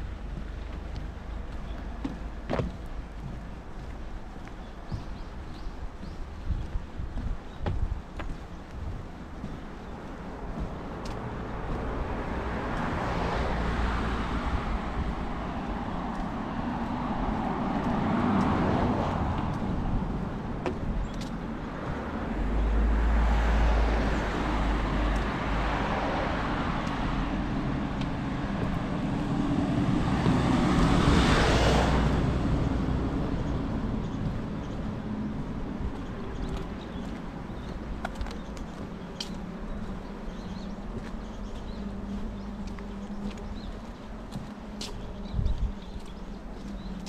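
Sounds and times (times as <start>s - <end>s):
cars passing: 0.0s - 47.0s.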